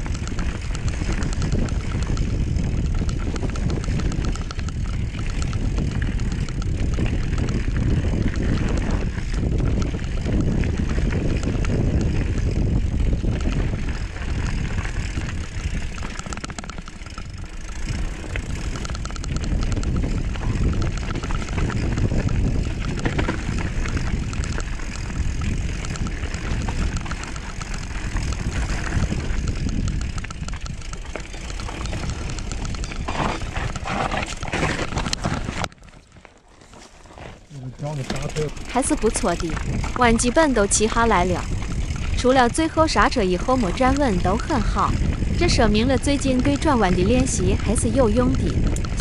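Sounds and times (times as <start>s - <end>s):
wind rushing over microphone: 0.0s - 35.8s, 37.8s - 49.0s
tyres rolling on dirt trail: 0.0s - 49.0s.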